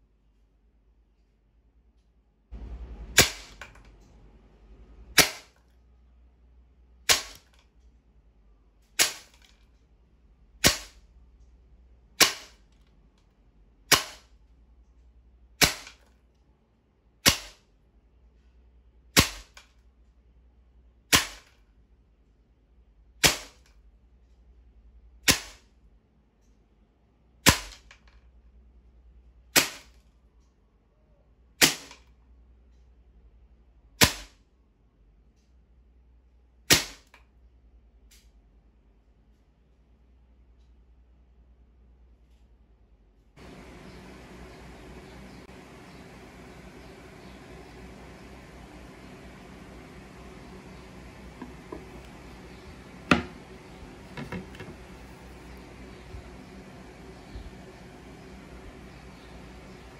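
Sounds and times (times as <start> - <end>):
air rifle shots: 3.1 - 3.8, 5.2 - 5.6, 7.1 - 7.5, 9.0 - 9.4, 10.6 - 11.0, 12.2 - 12.6, 13.9 - 14.3, 15.6 - 16.0, 17.2 - 17.6, 19.2 - 19.5, 21.1 - 21.5, 23.2 - 23.6, 25.3 - 25.6, 29.6 - 29.9, 31.6 - 32.0, 34.0 - 34.3, 36.7 - 37.1.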